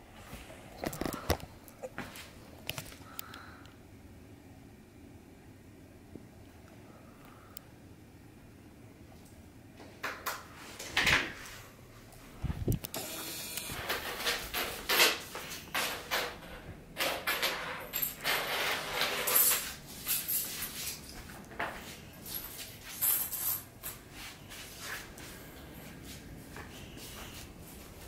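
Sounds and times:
footsteps: 19.4 - 28.0.

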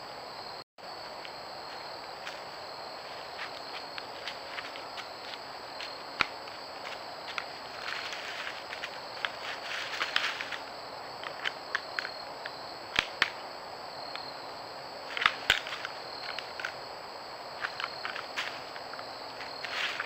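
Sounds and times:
faint high whine: 0.0 - 20.0
deer stepping in dry leaves: 6.8 - 10.7, 19.4 - 20.0.

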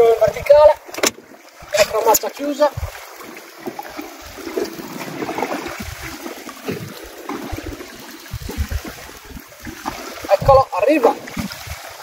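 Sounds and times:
water lapping against boat hull: 0.0 - 12.0
low buffeting: 2.6 - 10.7.

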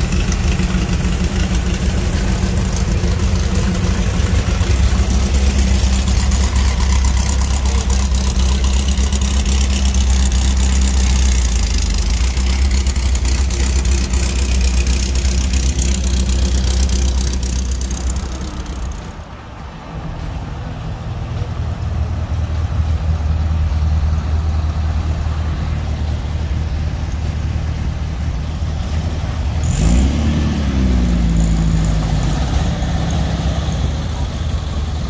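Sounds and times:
air-cooled engine idling: 0.0 - 19.3.

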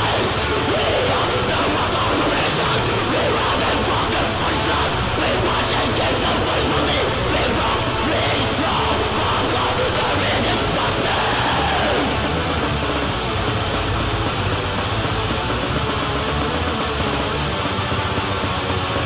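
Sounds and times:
distorted electric guitar: 0.0 - 19.0
low bass line: 0.0 - 19.0.

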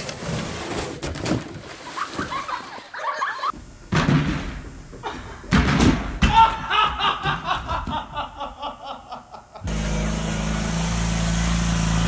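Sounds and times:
person laughing: 2.2 - 3.6, 6.3 - 9.8
tractor engine running: 9.7 - 12.0.

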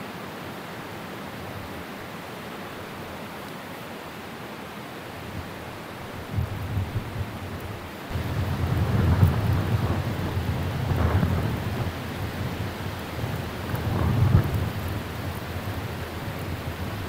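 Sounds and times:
gusty wind buffeting microphone: 6.2 - 17.0.

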